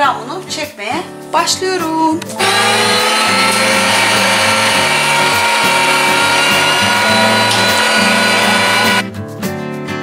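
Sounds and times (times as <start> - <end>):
electric meat grinder running: 2.4 - 9.1.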